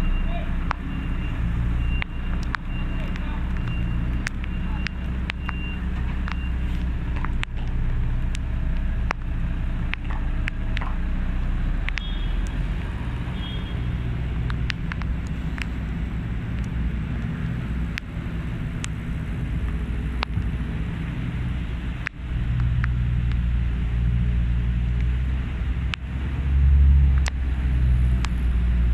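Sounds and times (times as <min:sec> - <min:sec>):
lorry diesel engines rumbling: 0:00.0 - 0:28.9
sharp clicks: 0:01.8 - 0:11.1, 0:11.8 - 0:18.1.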